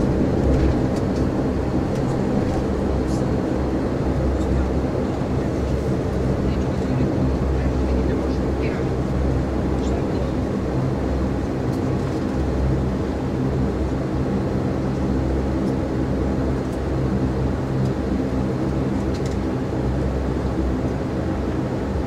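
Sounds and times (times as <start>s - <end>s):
airliner engines droning: 0.0s - 22.0s.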